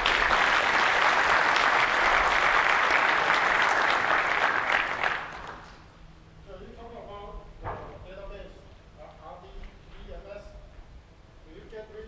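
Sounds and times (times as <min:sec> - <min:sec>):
audience applauding: 0:00.0 - 0:05.8.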